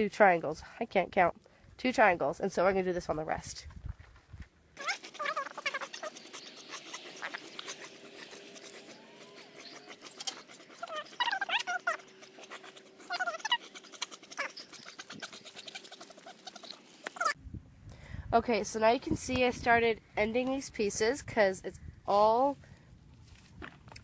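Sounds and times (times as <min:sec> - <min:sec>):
dog whining: 0:04.8 - 0:17.4.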